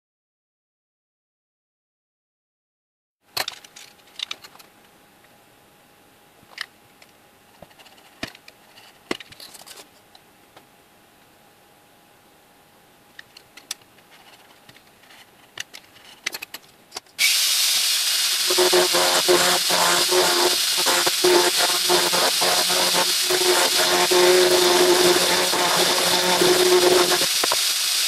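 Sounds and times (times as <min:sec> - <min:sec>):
rotary tool high whine: 0:17.2 - 0:28.0.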